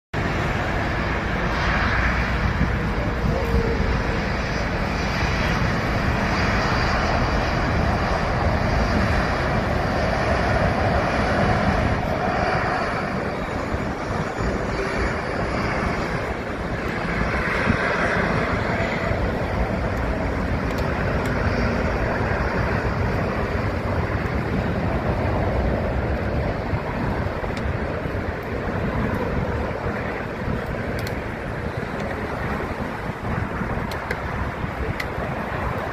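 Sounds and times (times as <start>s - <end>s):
jet engines roaring: 0.2s - 35.9s.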